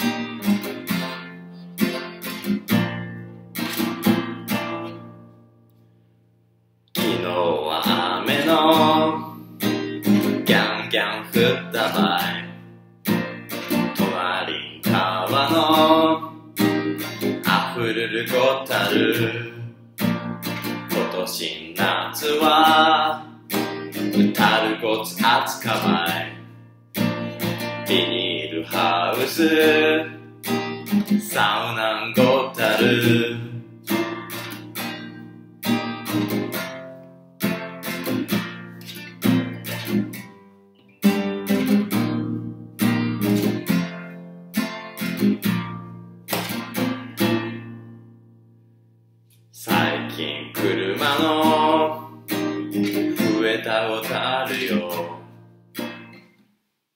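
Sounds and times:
strummed acoustic guitar: 0:00.0 - 0:06.0, 0:06.9 - 0:56.6
man singing: 0:07.0 - 0:12.7, 0:13.7 - 0:19.8, 0:20.8 - 0:26.5, 0:27.5 - 0:30.3, 0:30.9 - 0:34.0, 0:49.5 - 0:55.3.

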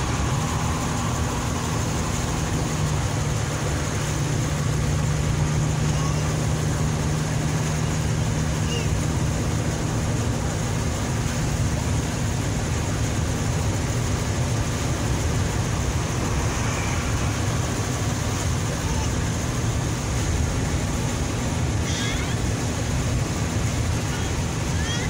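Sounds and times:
car road and engine rumble: 0:00.0 - 0:25.0.

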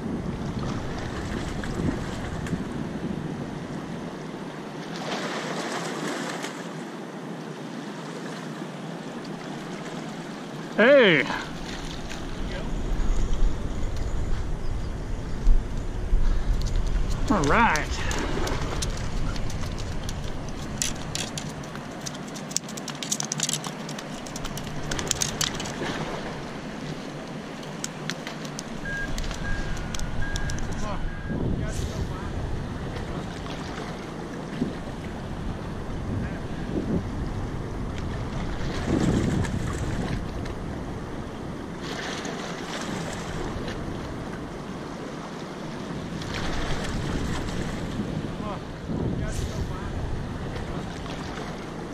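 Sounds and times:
wind buffeting microphone: 0:00.0 - 0:04.2, 0:11.4 - 0:22.0, 0:28.6 - 0:44.9, 0:45.8 - 0:51.9
river current rushing: 0:00.6 - 0:36.7.

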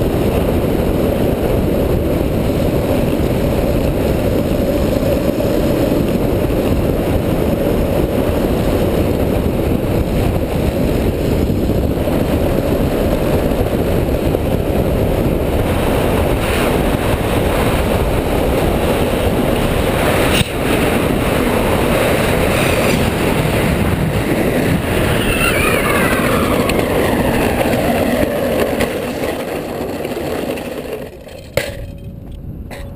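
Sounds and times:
wheels rolling on asphalt: 0:00.0 - 0:32.9
falling whine: 0:19.5 - 0:32.1.

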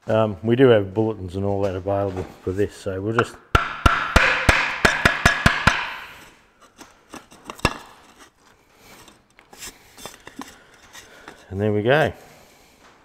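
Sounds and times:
metal knocks and scraping: 0:03.2 - 0:11.6.

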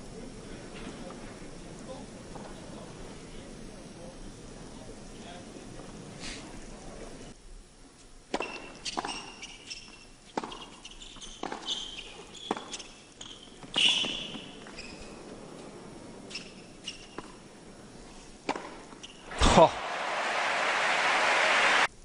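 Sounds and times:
tennis ball hit by racquets: 0:08.3 - 0:09.4, 0:10.3 - 0:10.8, 0:11.4 - 0:11.8, 0:12.4 - 0:12.9, 0:18.5 - 0:20.0
shoes squeaking on court: 0:08.4 - 0:15.4, 0:16.2 - 0:17.4, 0:18.5 - 0:19.3.

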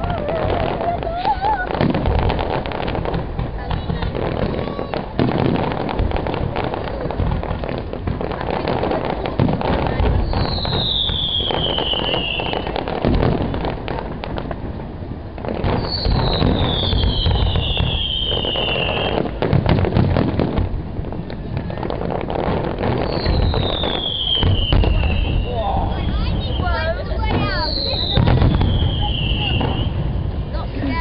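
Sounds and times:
falling firework whistle: 0:00.0 - 0:03.2, 0:10.1 - 0:13.6, 0:15.5 - 0:20.6, 0:22.7 - 0:30.9
firework bangs and crackling: 0:00.0 - 0:31.0.

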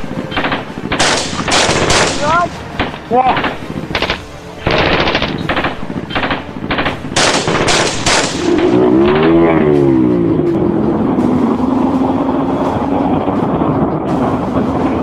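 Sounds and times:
multi-pitched droning: 0:00.0 - 0:15.0
gunfire bursts: 0:00.2 - 0:09.5.

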